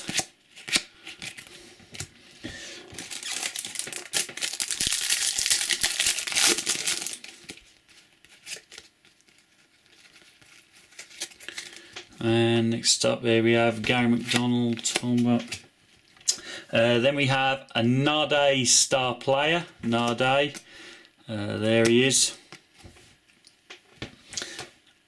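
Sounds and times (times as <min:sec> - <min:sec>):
foil wrappers crinkling: 0:02.9 - 0:12.0.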